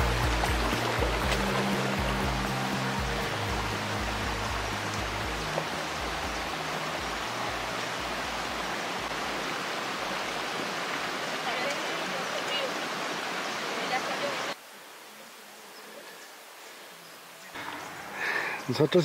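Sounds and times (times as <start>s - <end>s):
low background music: 0.0s - 9.1s
stream rushing over stones: 0.0s - 15.6s.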